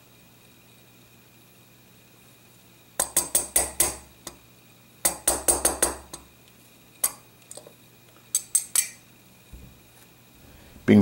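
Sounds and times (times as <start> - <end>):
hammer tapping on metal: 3.0 - 4.4, 5.0 - 6.3.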